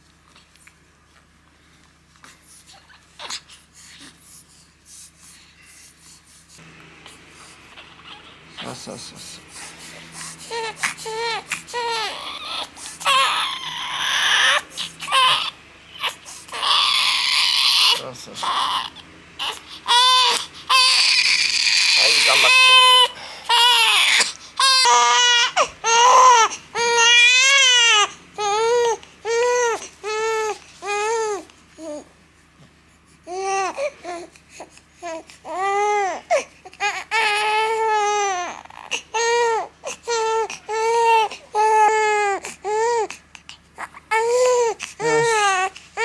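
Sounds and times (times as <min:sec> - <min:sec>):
baby crying: 0:07.7 - 0:08.8, 0:10.4 - 0:32.1, 0:33.3 - 0:34.3, 0:35.0 - 0:43.2, 0:43.8 - 0:46.0.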